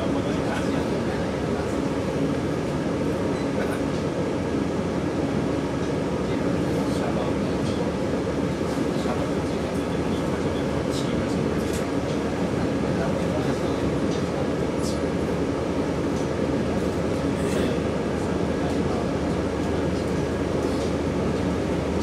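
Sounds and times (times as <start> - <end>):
train wheels rumbling on rails: 5.6 - 22.0.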